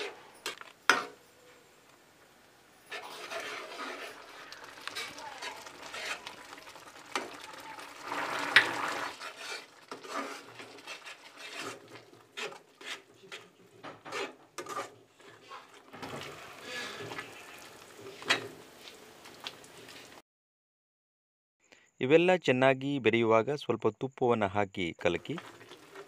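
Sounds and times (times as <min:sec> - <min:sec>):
steel spatula scraping a pan: 0:02.8 - 0:18.5.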